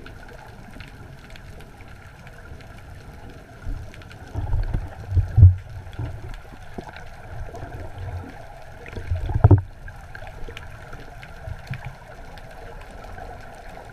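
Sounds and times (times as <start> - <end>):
faint crackles: 0.0 - 13.9
muffled underwater sloshing: 0.0 - 13.9
low water thumps: 3.7 - 8.3, 8.9 - 9.9.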